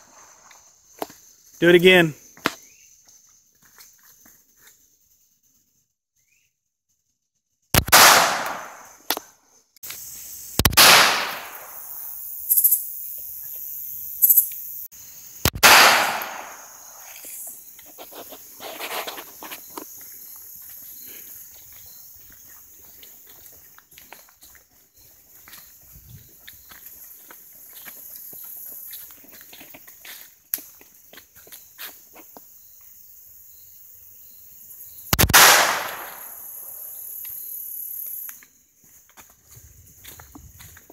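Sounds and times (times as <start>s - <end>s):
pistol shots echoing: 7.8s - 8.8s, 10.7s - 11.8s, 15.5s - 16.7s, 35.2s - 36.4s.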